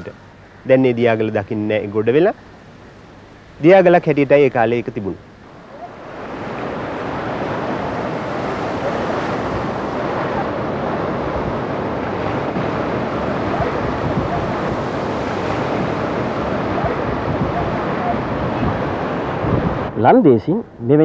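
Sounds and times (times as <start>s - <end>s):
waves washing over rocks: 5.0s - 19.9s.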